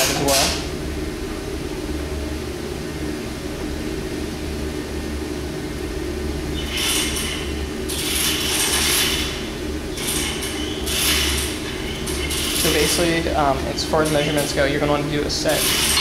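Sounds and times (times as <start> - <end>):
low shop hum: 0.0 - 16.0
feeler gauge blade scraping metal: 6.6 - 13.2.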